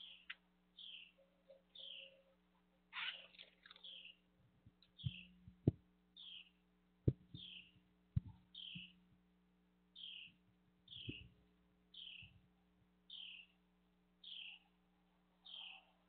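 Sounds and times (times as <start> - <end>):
birds calling: 0.0 - 4.2, 4.8 - 5.3, 6.2 - 6.5, 7.2 - 9.0, 10.0 - 12.4, 13.1 - 13.5, 14.2 - 14.7
faint steady hum: 0.0 - 16.0
sharp low knocks: 7.0 - 7.5.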